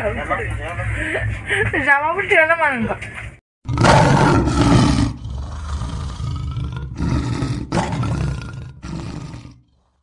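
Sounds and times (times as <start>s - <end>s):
deep roaring rumble: 3.7s - 9.8s.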